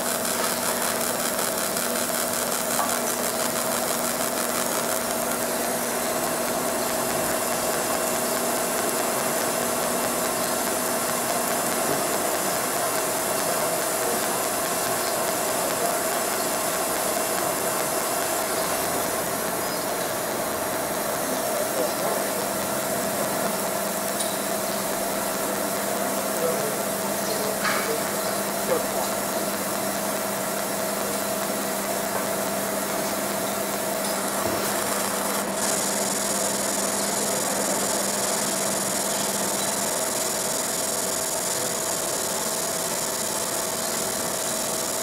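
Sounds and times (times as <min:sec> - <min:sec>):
laser machine mechanical buzz: 0:00.0 - 0:45.0.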